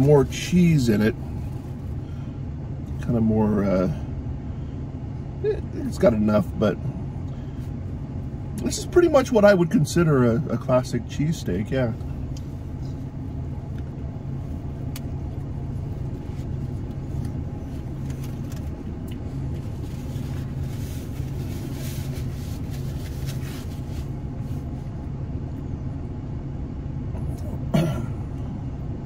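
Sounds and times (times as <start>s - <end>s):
car idling: 0.0s - 29.0s.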